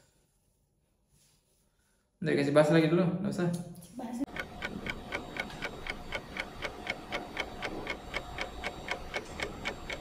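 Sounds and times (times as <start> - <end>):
clock ticking: 4.2 - 10.0.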